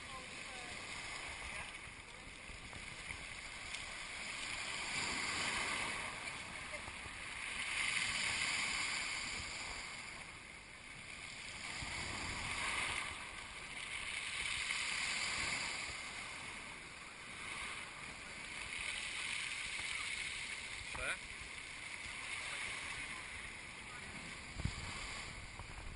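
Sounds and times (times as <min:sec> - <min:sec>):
surf washing over pebbles: 0:00.0 - 0:25.9.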